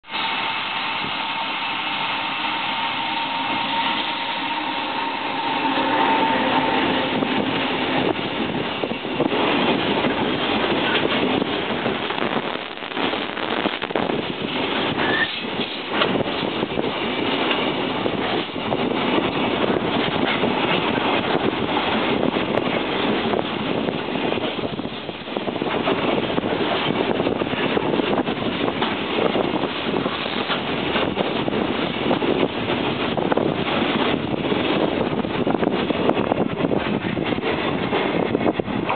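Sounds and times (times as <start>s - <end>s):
electric locomotive tone: 0.1s - 15.6s
train wheels clattering on rail: 5.4s - 38.9s.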